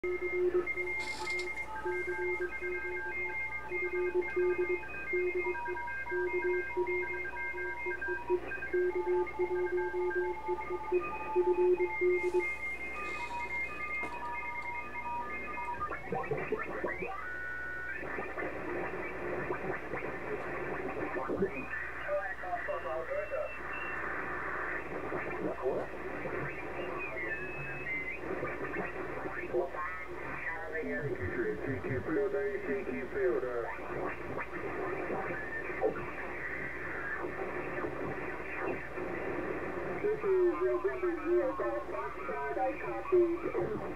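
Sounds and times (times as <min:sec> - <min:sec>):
morse or data tones: 0:00.0 - 0:43.9
radio band noise: 0:00.0 - 0:43.9
radio signals sweeping in pitch: 0:00.1 - 0:43.9
garbled radio chatter: 0:11.8 - 0:14.8, 0:15.6 - 0:17.3, 0:18.0 - 0:43.9.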